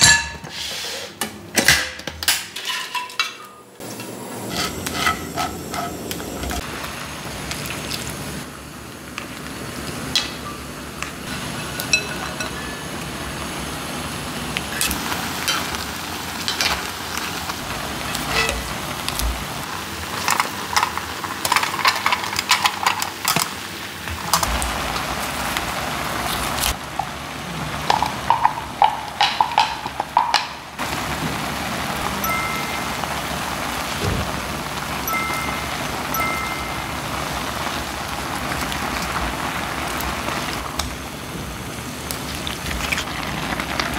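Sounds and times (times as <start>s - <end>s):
vegetables clattering into pan: 1.6s - 5.9s, 14.7s - 27.2s, 27.8s - 31.5s
water simmering with hiss: 23.2s - 43.9s.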